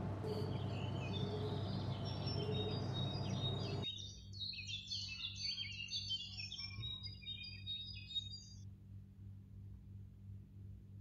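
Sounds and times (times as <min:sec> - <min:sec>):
low hum and hiss: 0:00.0 - 0:03.8
small birds chirping: 0:00.0 - 0:08.6.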